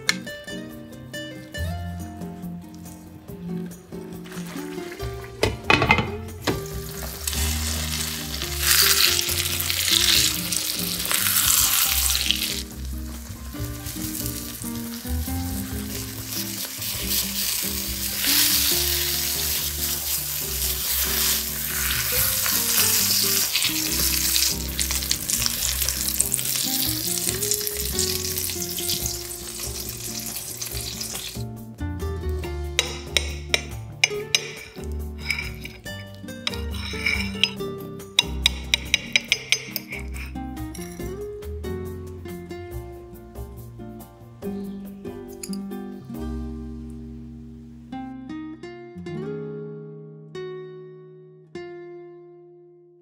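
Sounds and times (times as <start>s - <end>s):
background music with held notes: 0.0s - 52.8s
omelette sizzling in a pan: 4.2s - 31.6s, 34.3s - 37.6s.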